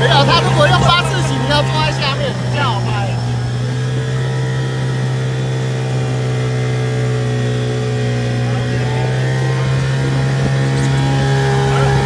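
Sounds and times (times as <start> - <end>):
outboard motor running: 0.0 - 12.0.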